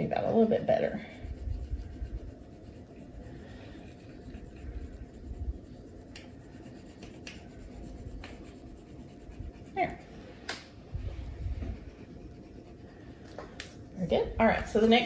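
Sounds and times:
crayons scratching on paper: 0.4s - 10.1s, 11.2s - 13.2s.

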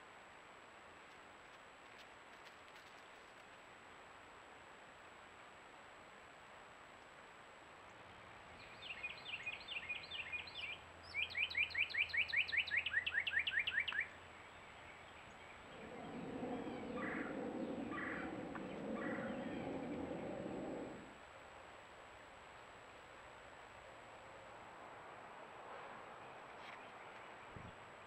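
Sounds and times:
faint bird chirps: 8.6s - 21.2s
bird singing whistles: 8.7s - 14.2s
low rushing noise: 15.2s - 22.0s.

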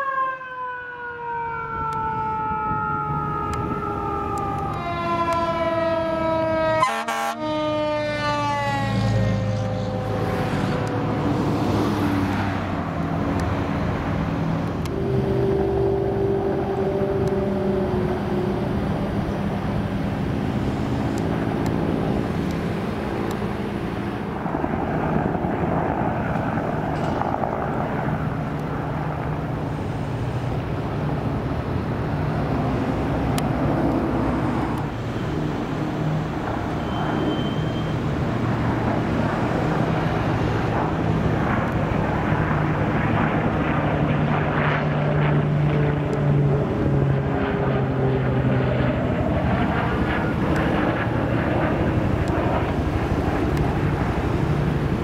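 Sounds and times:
siren falling in pitch: 0.0s - 12.5s, 14.7s - 20.3s
engine noise with low hum: 9.3s - 24.6s.

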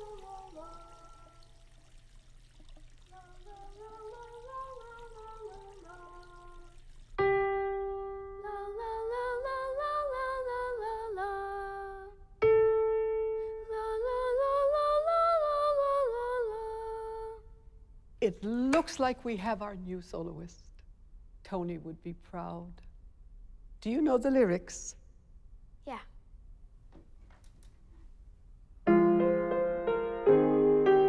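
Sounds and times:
boy singing wordless melody: 0.0s - 1.8s, 3.0s - 12.4s, 13.4s - 17.5s.

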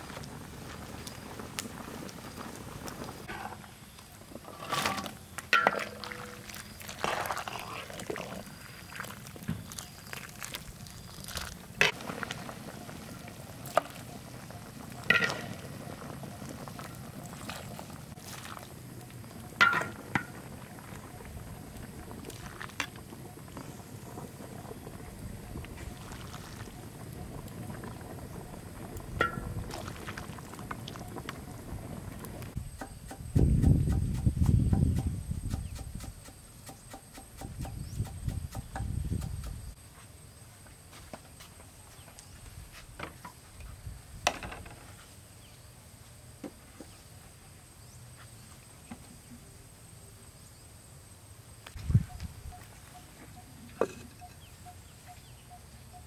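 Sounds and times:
insects droning: 0.0s - 56.0s
soup bubbling in a pot: 0.1s - 32.8s
pot knocking on clay stove: 19.6s - 20.4s, 29.2s - 29.7s.

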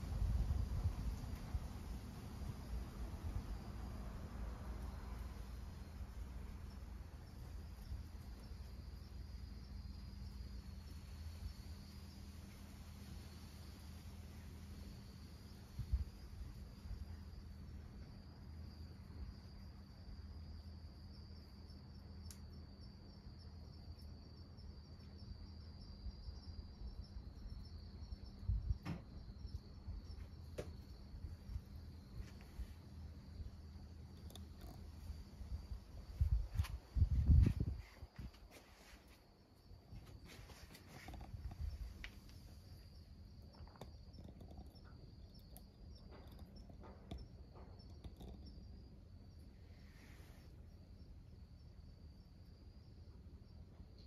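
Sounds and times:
faint low hum: 0.0s - 54.0s
insect chirping: 0.0s - 54.0s
soft ticks: 22.2s - 22.5s, 34.0s - 35.1s, 43.4s - 48.7s
insect trilling: 39.4s - 51.0s.

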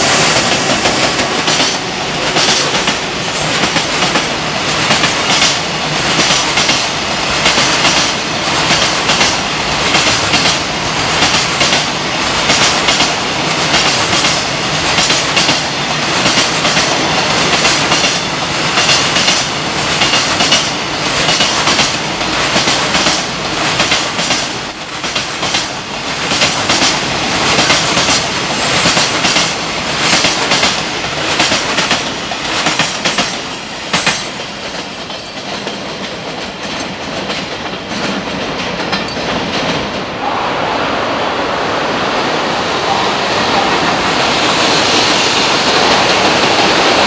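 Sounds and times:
train wheels clattering on rails: 0.0s - 40.2s, 43.2s - 47.0s
train rumble: 0.0s - 47.0s.

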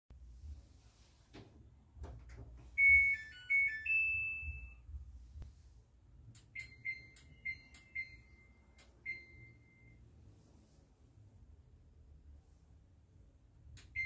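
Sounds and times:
short beeps: 2.8s - 4.8s, 6.6s - 10.0s.

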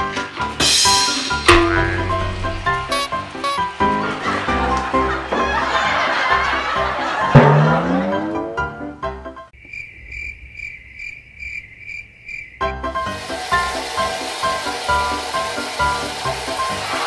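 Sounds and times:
background music: 0.0s - 9.5s
cricket chirping sound effect: 9.6s - 13.0s.

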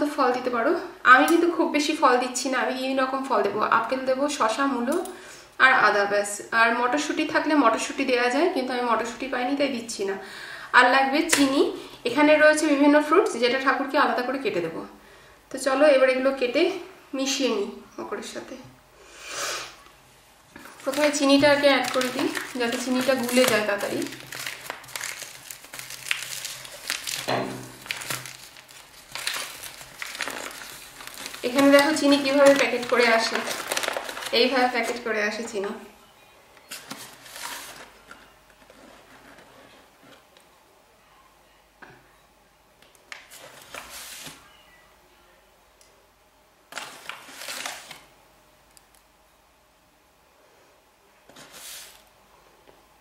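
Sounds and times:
paper packet crinkling: 20.6s - 35.5s, 36.7s - 39.8s, 43.2s - 44.4s, 46.7s - 48.1s.

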